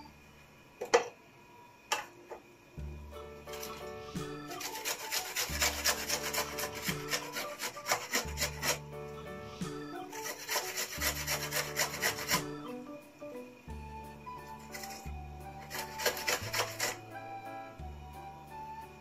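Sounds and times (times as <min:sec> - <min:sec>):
soft background music: 0:01.4 - 0:19.0
onion rasping on metal grater: 0:04.4 - 0:08.8, 0:10.1 - 0:12.6, 0:14.5 - 0:17.0.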